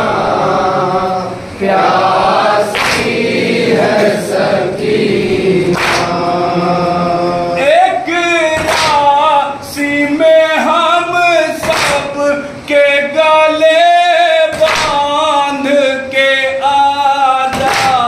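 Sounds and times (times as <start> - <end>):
man reciting with vibrato: 0.0 - 18.0
men chanting together: 0.0 - 18.0
chest-beating slaps: 2.7 - 3.2, 5.7 - 6.2, 8.6 - 9.1, 11.6 - 12.1, 14.6 - 15.0, 17.5 - 18.0.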